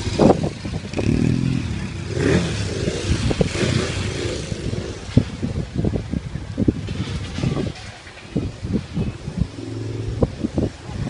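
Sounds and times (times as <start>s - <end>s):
motorcycle engine revving: 0.0s - 5.8s, 9.3s - 11.0s.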